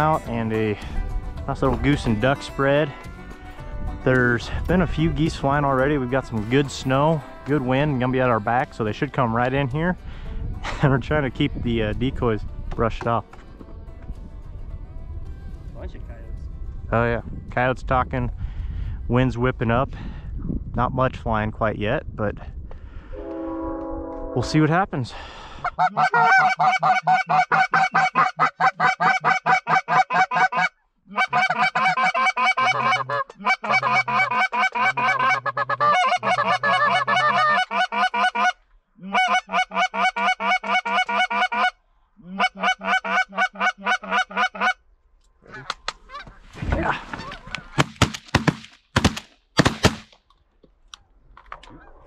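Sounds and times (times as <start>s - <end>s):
goose honking and clucking: 25.6s - 44.8s, 45.4s - 46.4s
shotgun shots: 47.8s - 50.1s.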